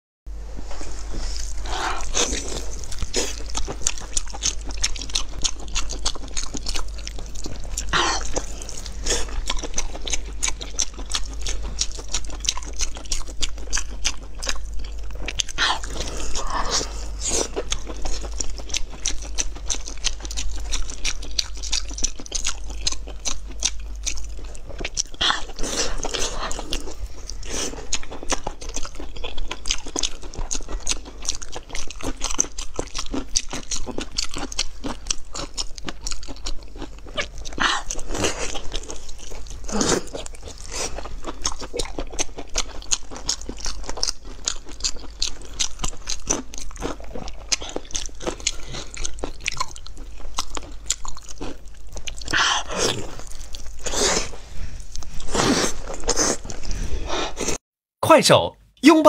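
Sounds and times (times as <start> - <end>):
steady low hum: 0.3 - 33.0
wet chewing and tearing meat: 1.2 - 57.6.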